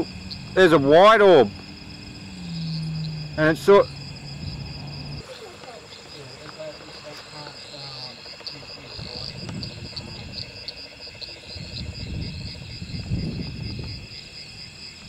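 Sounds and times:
low rumbling noise: 0.0s - 5.2s
crickets chirping: 0.0s - 15.0s.

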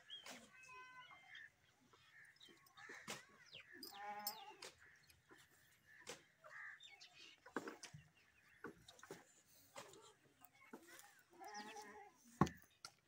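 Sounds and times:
farm animal bleating: 3.9s - 4.6s, 11.3s - 12.3s.

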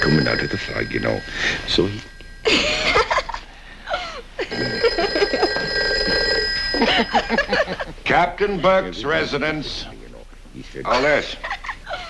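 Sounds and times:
telephone bell ringing: 0.0s - 3.4s, 4.5s - 7.9s.

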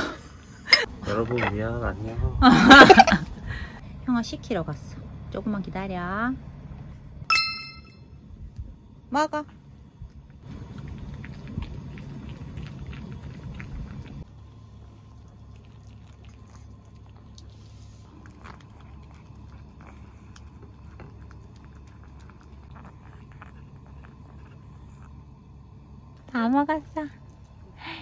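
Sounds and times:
low background hum: 0.0s - 28.0s
dogs crunching dry kibble: 10.1s - 25.4s.

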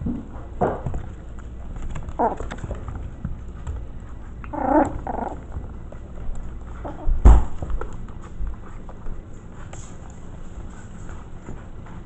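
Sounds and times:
puppy play growl: 1.0s - 7.2s.

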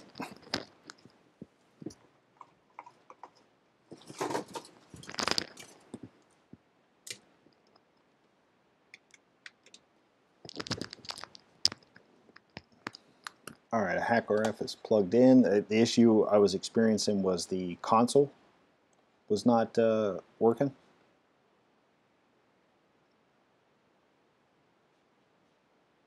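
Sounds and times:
rustling: 0.0s - 6.6s, 10.4s - 13.5s.

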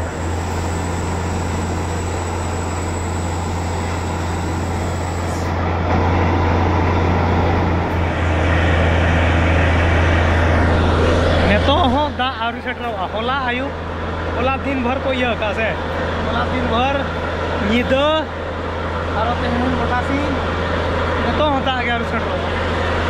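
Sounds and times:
motor pump humming: 0.0s - 8.3s.

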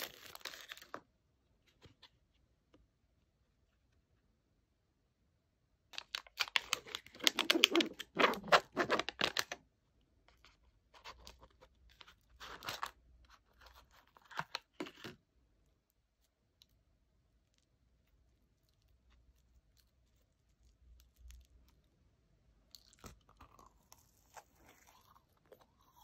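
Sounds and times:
snack packaging tearing and crinkling: 0.0s - 1.0s, 6.0s - 9.6s, 11.0s - 15.1s, 22.7s - 26.0s.

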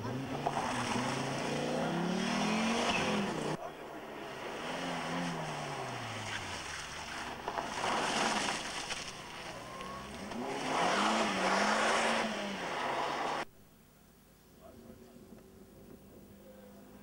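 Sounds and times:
rally car engine revving: 0.0s - 13.5s
tyre and road noise: 0.0s - 13.5s.

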